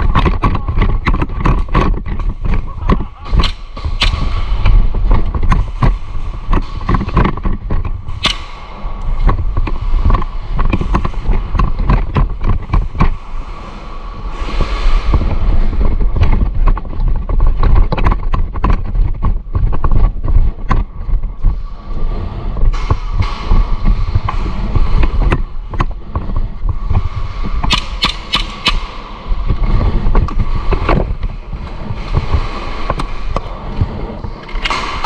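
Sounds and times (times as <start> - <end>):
low rumble of handling noise: 0.0 - 35.0
airsoft gunfire pops and clicks: 8.2 - 8.5, 27.7 - 28.8.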